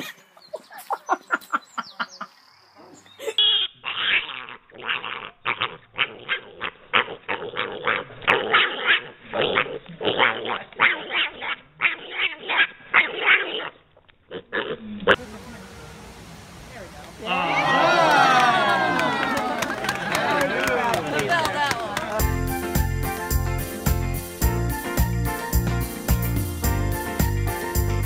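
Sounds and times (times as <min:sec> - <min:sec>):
piglet grunting and squealing: 0:03.4 - 0:15.2.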